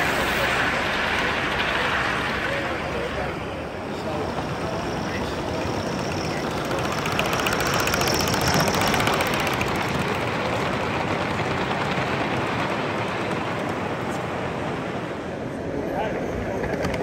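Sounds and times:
model train wheels rumbling: 0.0s - 17.0s
fine clicks of wheels: 5.2s - 11.5s.

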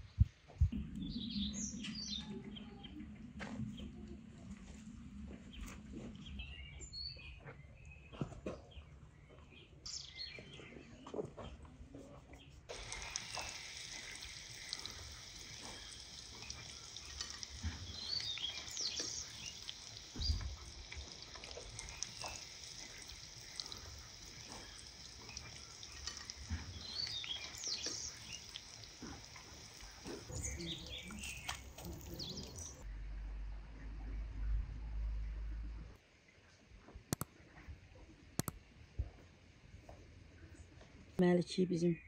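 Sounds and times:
birds chirping: 12.7s - 32.8s
deep-frying sizzle: 12.7s - 32.8s.

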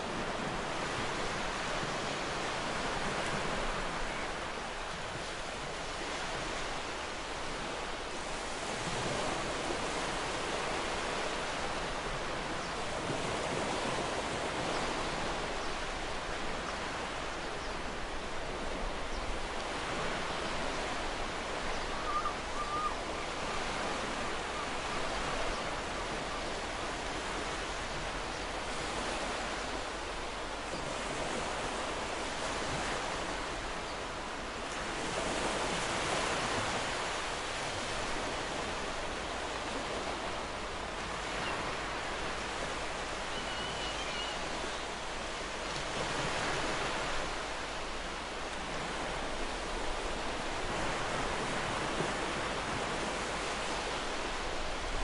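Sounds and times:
ocean waves washing on beach: 0.0s - 55.0s
faint chirp: 43.3s - 44.4s.

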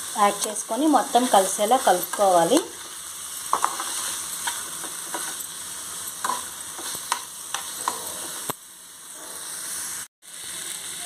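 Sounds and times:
vegetables sizzling in oil: 0.0s - 11.0s
spatula scraping and tapping pan: 3.5s - 5.5s, 6.1s - 8.6s.

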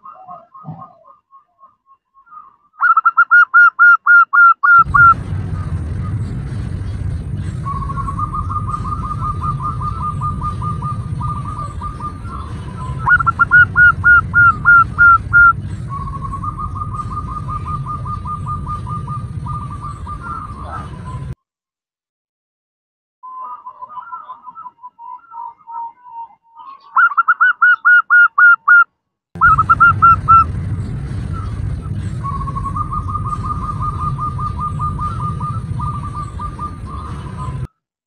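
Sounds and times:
dove cooing and trilling: 0.0s - 1.4s, 2.3s - 5.2s, 7.6s - 21.3s, 23.4s - 28.7s, 29.4s - 30.5s, 31.3s - 37.7s
low rumble: 4.8s - 21.4s, 29.4s - 37.7s.

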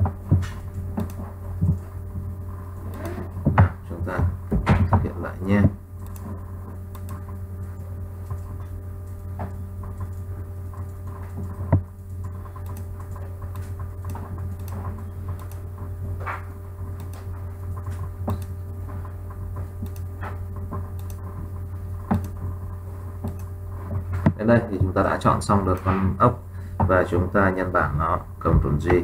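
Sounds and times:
low electrical hum: 0.0s - 29.0s
computer mouse clicks: 1.0s - 1.8s, 6.0s - 6.3s, 6.9s - 7.2s, 10.8s - 15.6s, 17.0s - 17.3s, 18.2s - 18.6s, 19.8s - 20.1s, 21.0s - 21.2s, 22.1s - 22.4s, 23.2s - 23.5s.

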